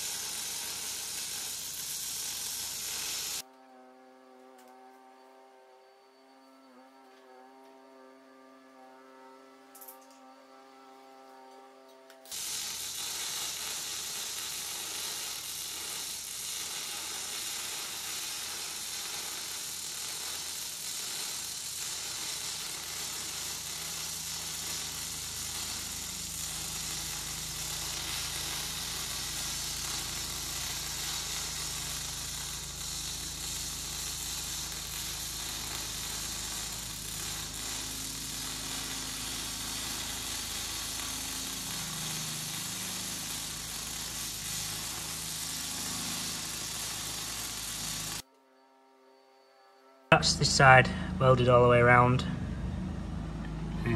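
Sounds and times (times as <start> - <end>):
crackling sizzle of welding arc: 0.0 - 3.5, 9.7 - 10.3, 11.4 - 48.3.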